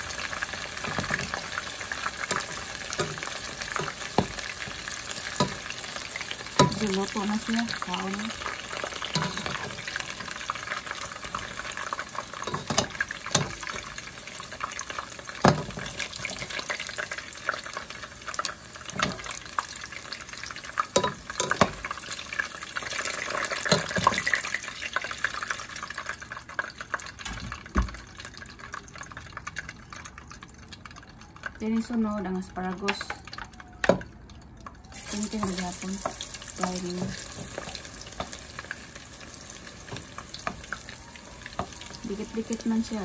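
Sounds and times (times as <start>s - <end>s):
hot oil sizzling: 0.0s - 43.0s
metal tongs scraping a pot: 8.4s - 10.2s.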